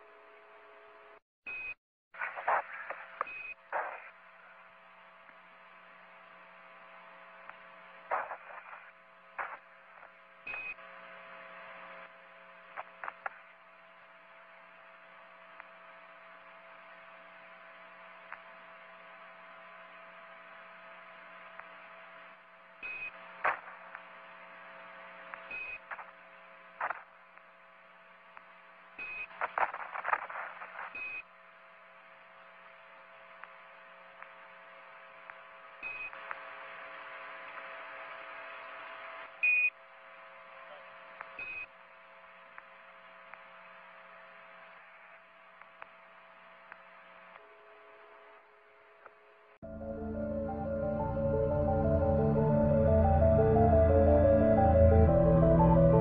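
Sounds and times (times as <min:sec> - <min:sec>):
radio crackles and clicks: 0:02.2 - 0:04.6, 0:07.4 - 0:10.8, 0:12.0 - 0:13.6, 0:23.0 - 0:27.6, 0:28.3 - 0:31.3, 0:35.2 - 0:39.4
radio hiss and hum: 0:02.2 - 0:56.0.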